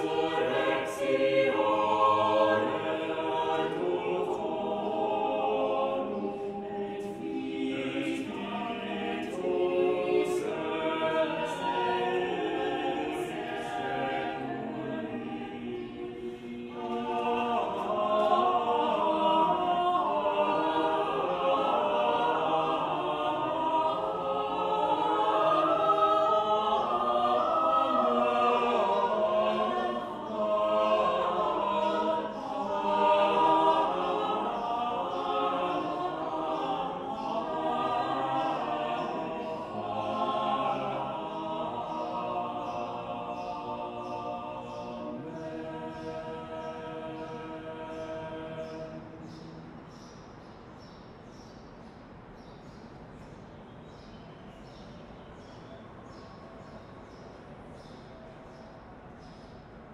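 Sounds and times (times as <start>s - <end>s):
choir singing a cappella: 0.0s - 59.9s.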